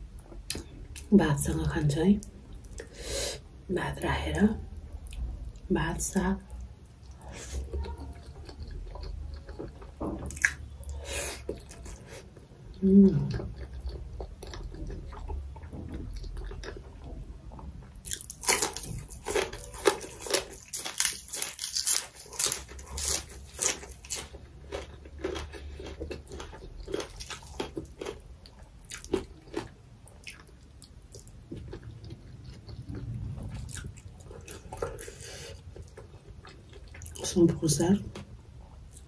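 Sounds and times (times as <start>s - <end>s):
mouth chewing crunchy food: 6.5s - 37.4s.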